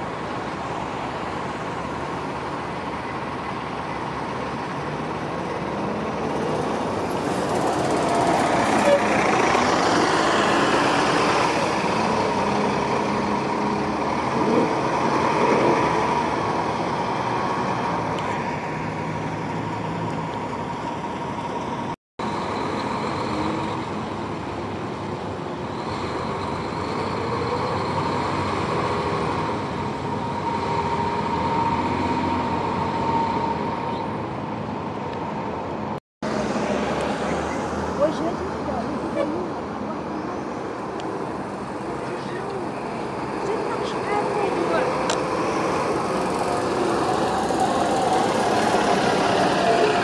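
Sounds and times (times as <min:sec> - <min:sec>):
bus engines passing: 0:00.0 - 0:50.0
steady traffic hum: 0:00.0 - 0:50.0.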